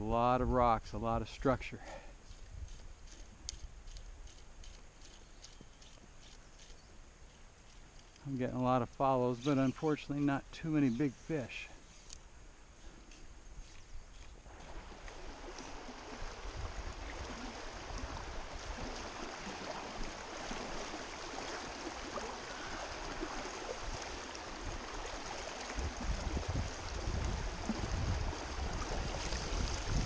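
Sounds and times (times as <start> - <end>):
creek water rushing: 14.4 - 30.0
low water rumbling: 14.4 - 30.0.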